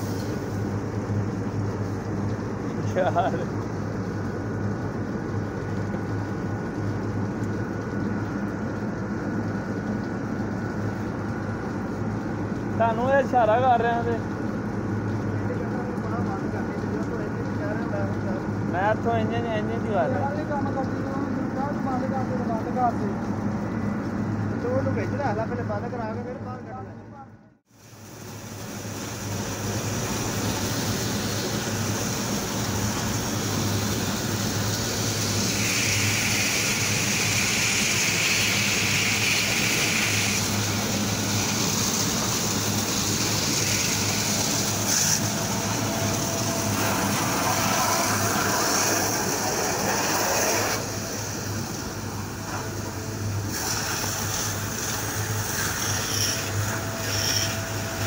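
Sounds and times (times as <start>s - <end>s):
water jet hissing and splashing: 0.0s - 26.4s, 27.7s - 58.0s
engine droning: 39.5s - 58.0s.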